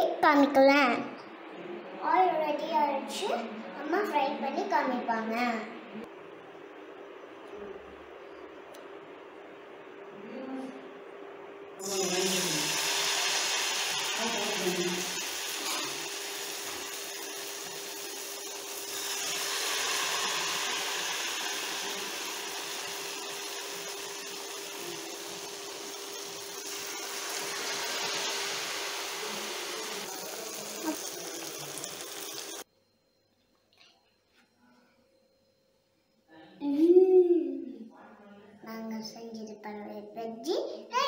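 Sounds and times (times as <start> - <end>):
food deep-frying in hot oil: 11.8 - 32.7.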